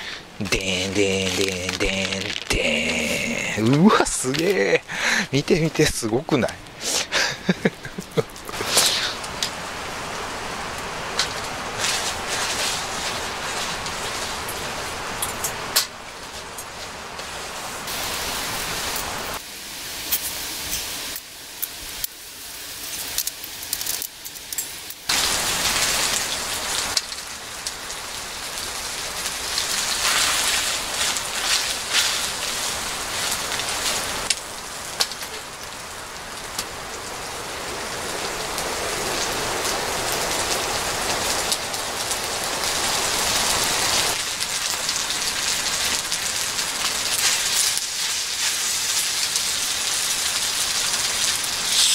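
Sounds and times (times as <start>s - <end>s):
grease popping and spattering: 0.6s - 5.2s
meat sizzling in a frying pan: 17.2s - 34.3s, 44.1s - 51.9s.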